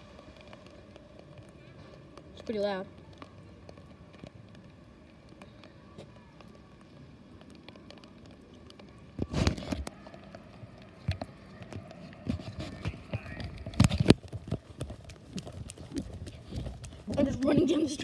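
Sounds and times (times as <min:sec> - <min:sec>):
rain: 0:00.0 - 0:18.0
running footsteps on wet pavement: 0:00.0 - 0:18.0
distant jet engines rumbling: 0:09.9 - 0:18.0.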